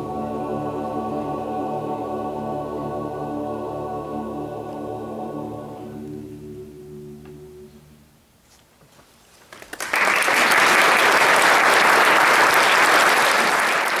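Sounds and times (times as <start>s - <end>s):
choir holding a chord: 0.0s - 8.2s
audience applause: 9.6s - 14.0s.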